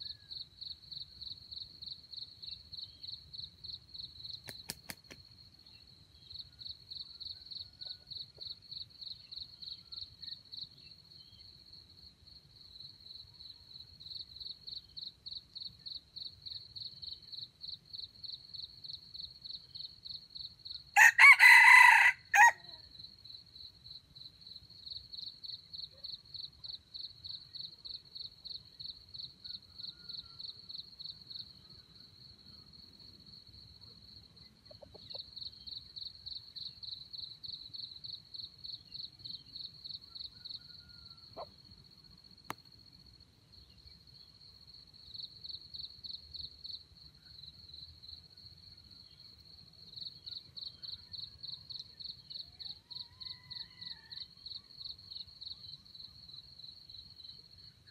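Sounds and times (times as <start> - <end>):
insect chirping: 0.0 - 57.9
rooster crowing: 21.0 - 22.8, 40.2 - 41.5, 52.8 - 54.3.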